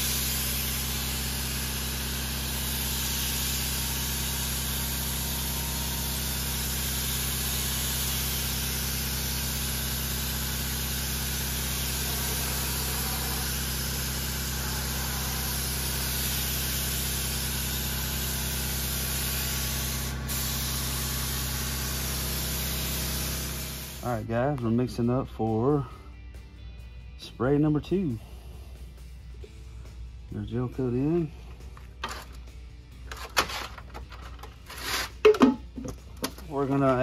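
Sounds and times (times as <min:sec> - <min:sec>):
spray gun hissing: 0:00.0 - 0:24.1
low machine hum: 0:00.0 - 0:24.6.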